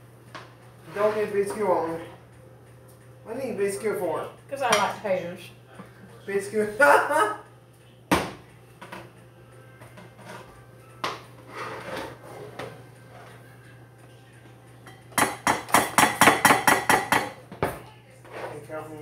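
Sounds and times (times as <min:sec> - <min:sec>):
metal spoon scraping pot: 0:10.0 - 0:10.5, 0:11.5 - 0:13.3.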